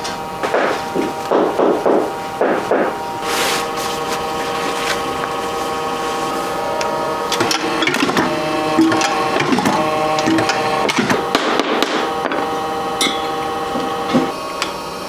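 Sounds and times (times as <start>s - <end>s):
press motor hum: 0.0s - 15.0s.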